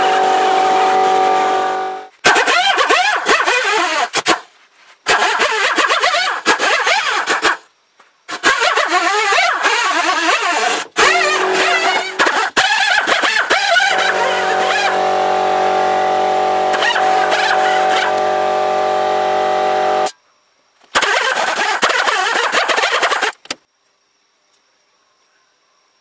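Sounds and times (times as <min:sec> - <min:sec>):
die grinder whining: 0:00.0 - 0:04.4, 0:08.3 - 0:20.1
scratchy grinding noise: 0:00.0 - 0:07.6, 0:08.3 - 0:20.1.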